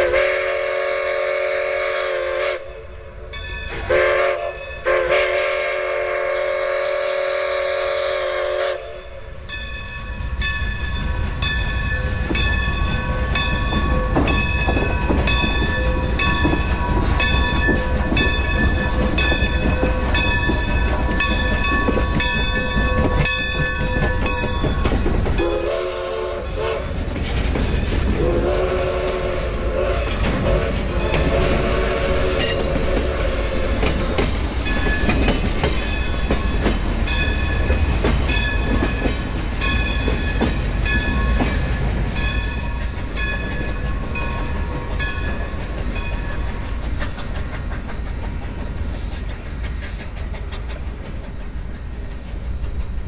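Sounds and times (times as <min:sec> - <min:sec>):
steam locomotive whistle: 0:00.0 - 0:03.0, 0:03.7 - 0:09.3, 0:25.3 - 0:27.0, 0:28.2 - 0:34.2
train passing with low rumble: 0:00.0 - 0:53.0
rhythmic clanging: 0:09.9 - 0:25.6, 0:32.4 - 0:53.0.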